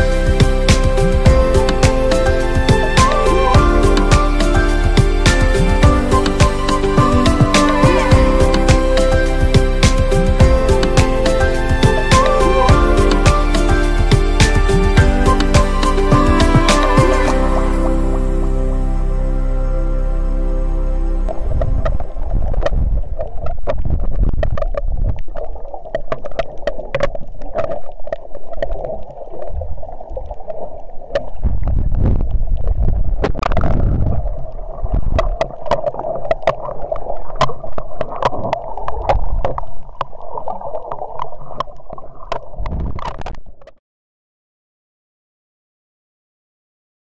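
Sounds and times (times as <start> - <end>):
underwater rushing and gurgling: 0.0 - 19.3, 20.2 - 43.6
low rumble: 0.0 - 25.6, 31.3 - 35.6.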